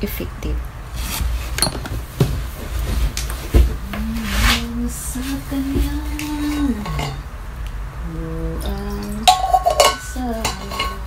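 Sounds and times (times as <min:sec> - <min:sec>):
dishes clinking: 0:05.8 - 0:07.3, 0:08.8 - 0:11.0
woman humming: 0:08.0 - 0:11.0.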